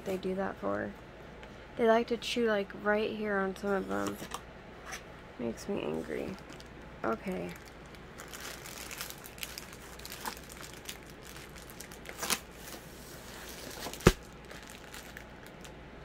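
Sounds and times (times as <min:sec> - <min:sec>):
plastic sleeve crinkling: 0:05.8 - 0:15.8.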